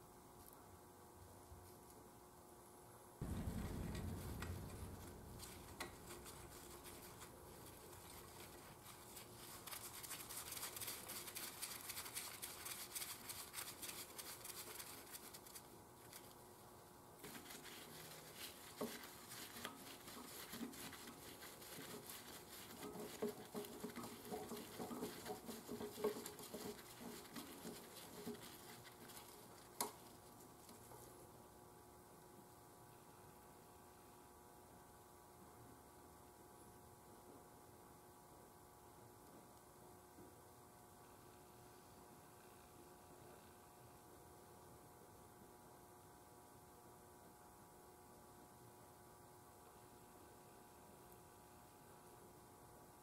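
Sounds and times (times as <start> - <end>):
gloved hands rubbing and rustling: 3.2 - 31.5.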